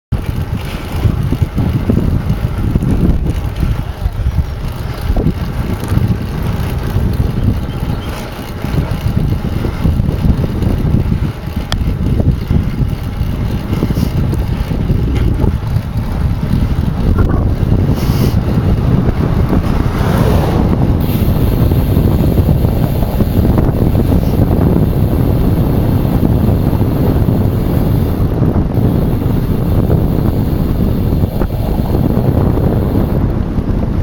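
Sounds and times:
wind buffeting microphone: 0:00.1 - 0:34.0.

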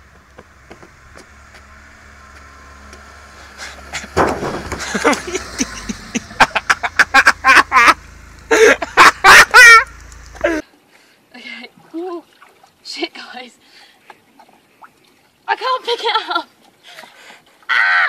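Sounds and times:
car driving past: 0:00.0 - 0:10.6
shouts or laughter: 0:04.8 - 0:10.6, 0:17.7 - 0:18.0.

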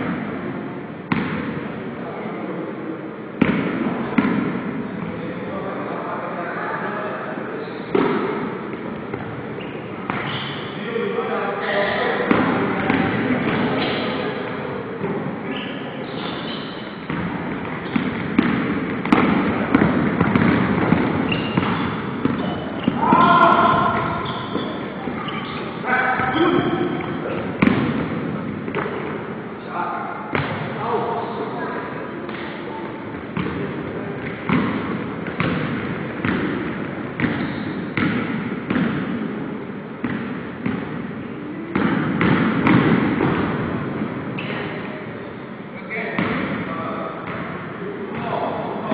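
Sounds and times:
shoe squeaks: 0:07.6 - 0:07.9, 0:09.6 - 0:10.8, 0:15.4 - 0:17.1, 0:21.2 - 0:27.4, 0:37.3 - 0:38.0, 0:44.4 - 0:44.7
basketball bouncing on wooden floor: 0:17.1 - 0:25.4, 0:27.4 - 0:29.1, 0:34.2 - 0:39.1.

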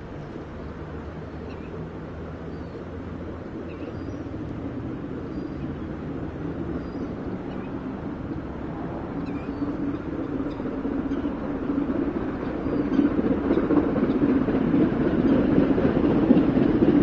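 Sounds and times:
distant steam locomotive rumble: 0:00.0 - 0:17.0.

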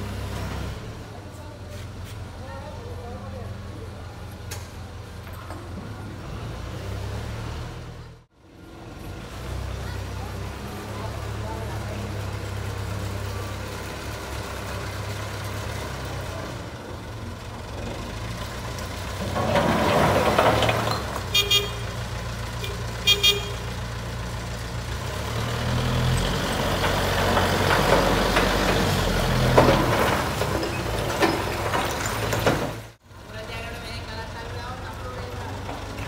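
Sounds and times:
diesel engine running: 0:00.0 - 0:36.0
horn toots: 0:21.3 - 0:22.0, 0:22.6 - 0:23.8.

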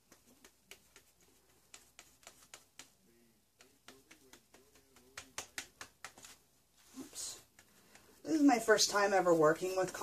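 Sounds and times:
paintbrush clicks and taps: 0:00.0 - 0:06.5, 0:07.4 - 0:08.2.

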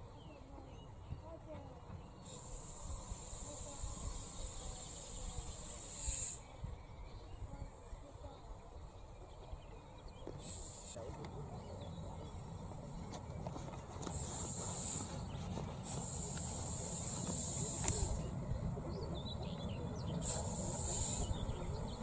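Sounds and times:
locomotive low rumble: 0:00.0 - 0:22.0
steam hissing: 0:02.2 - 0:06.5, 0:10.3 - 0:11.0, 0:14.0 - 0:18.4, 0:20.1 - 0:22.0.

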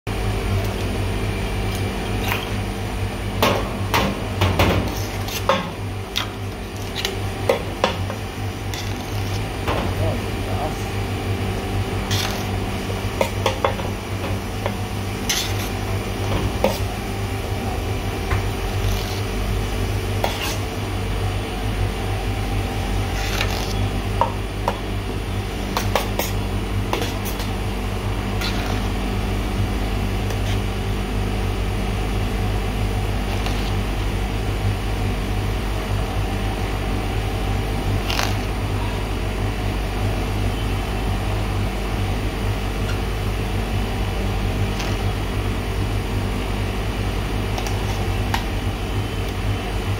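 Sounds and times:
freezer machine humming: 0:00.1 - 0:49.9
metal spatula scraping: 0:04.9 - 0:07.2, 0:08.7 - 0:09.5, 0:12.0 - 0:12.6, 0:15.3 - 0:15.8, 0:20.2 - 0:20.7, 0:23.1 - 0:23.9, 0:28.4 - 0:28.9.

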